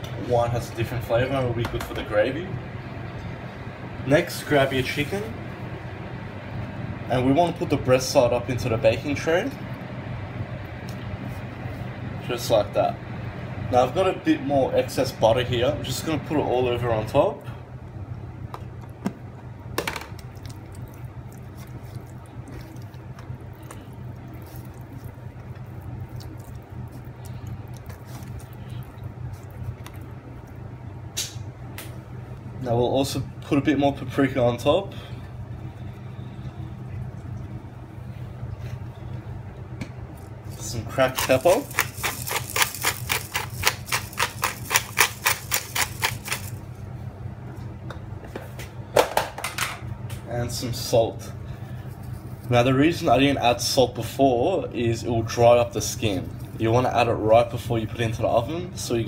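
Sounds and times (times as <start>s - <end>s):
steady low hum: 0.0s - 59.0s
hands squelching on chicken skin: 20.2s - 30.6s, 40.5s - 46.6s
pepper grinder clicking: 41.1s - 46.5s.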